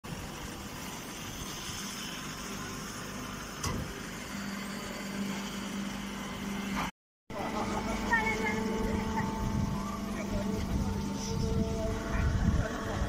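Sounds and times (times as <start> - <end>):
baler mechanical hum: 0.1 - 13.0.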